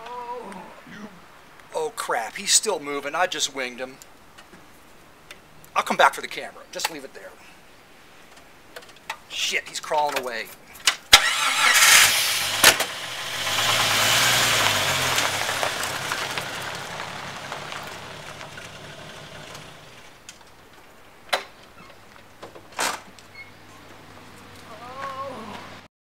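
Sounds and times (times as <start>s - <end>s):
engine running and revving: 11.7s - 20.0s.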